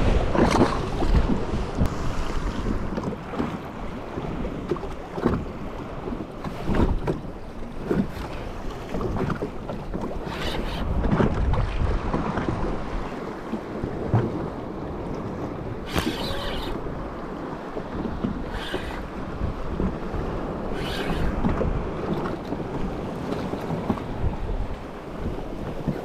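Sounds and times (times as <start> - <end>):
waves slapping against hull: 0.0 - 26.0
wind buffeting microphone: 0.0 - 26.0.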